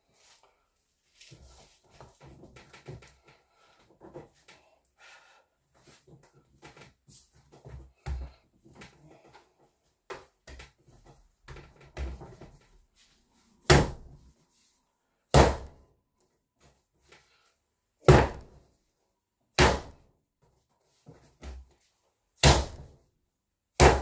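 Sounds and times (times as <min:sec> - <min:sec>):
dough slapping on counter: 0:23.8 - 0:24.0.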